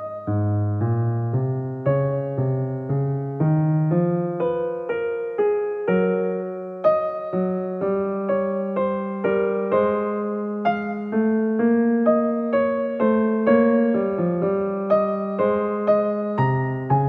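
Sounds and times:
gentle piano melody: 0:00.0 - 0:17.0.

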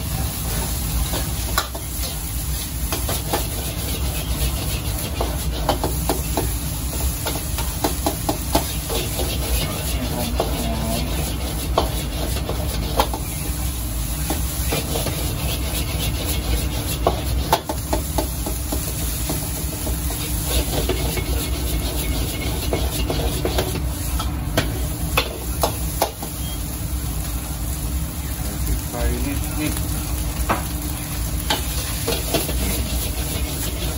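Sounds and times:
food sizzling: 0:00.0 - 0:33.9
metal ladle scraping a wok: 0:08.7 - 0:13.2, 0:31.6 - 0:33.9.

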